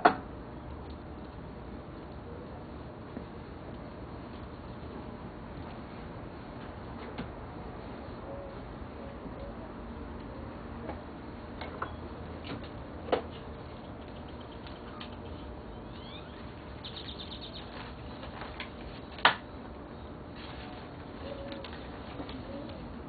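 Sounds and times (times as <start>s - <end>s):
dove cooing faintly: 2.0s - 3.0s, 7.6s - 11.1s, 20.0s - 23.0s
small birds chirping: 13.3s - 18.3s.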